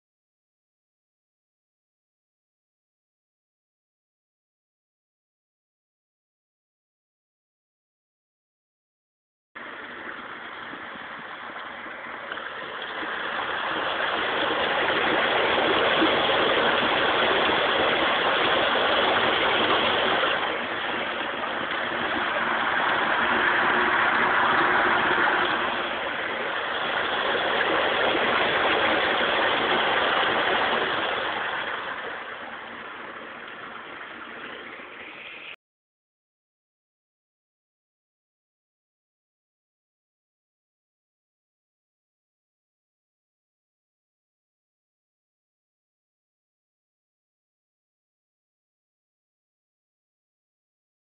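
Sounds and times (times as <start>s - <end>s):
water rushing into a hole: 9.6s - 35.6s.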